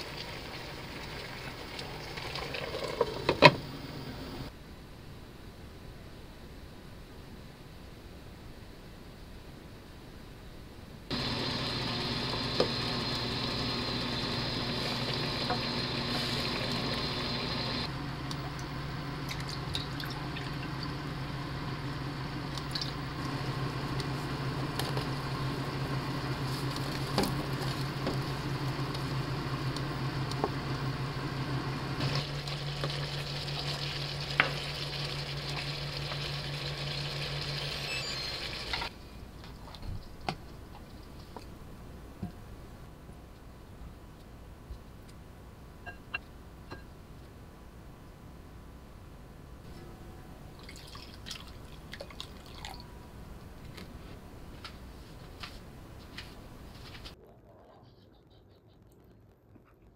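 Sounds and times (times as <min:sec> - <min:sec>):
food sizzling and bubbling: 0:00.0 - 0:04.5, 0:11.1 - 0:38.9
steady low hum: 0:11.1 - 0:37.7
wooden spoon stirring: 0:22.7 - 0:30.6.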